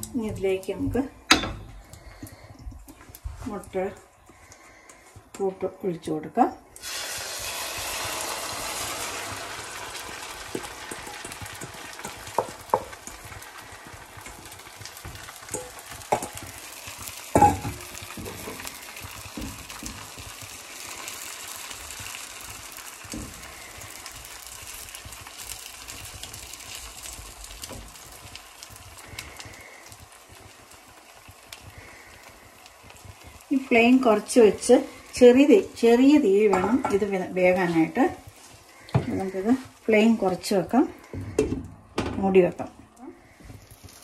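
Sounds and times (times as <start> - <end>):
egg sizzling in frying pan: 0.0 - 44.0
wooden spatula scraping pan: 13.6 - 28.1, 33.2 - 41.6.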